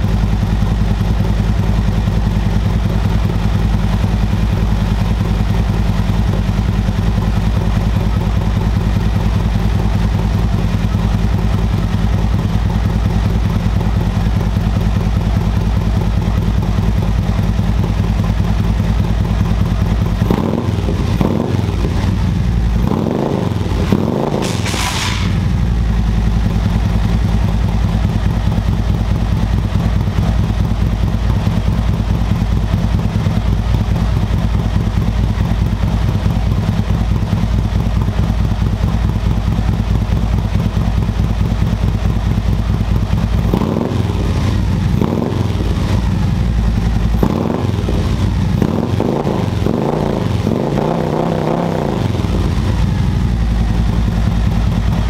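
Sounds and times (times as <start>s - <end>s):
motorcycle engine idling: 0.0s - 55.0s.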